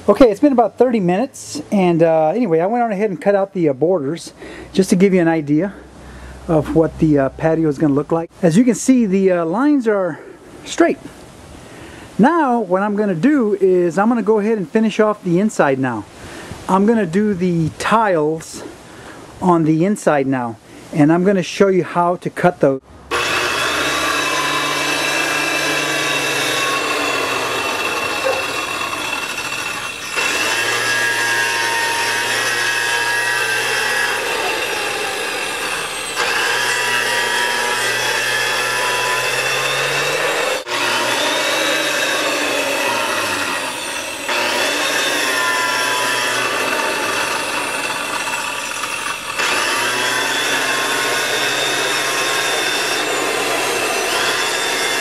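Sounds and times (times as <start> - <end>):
circular saw cutting concrete: 23.1 - 55.0.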